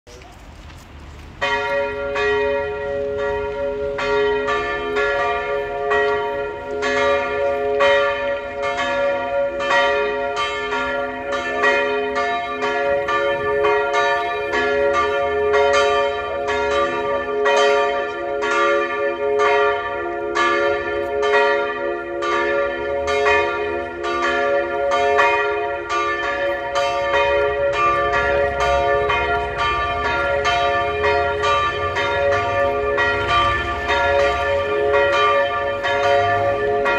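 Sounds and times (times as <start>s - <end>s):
church bells ringing: 1.4s - 36.9s.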